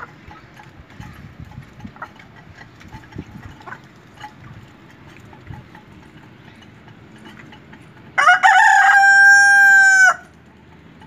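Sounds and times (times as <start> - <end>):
rooster crowing: 8.2 - 10.3.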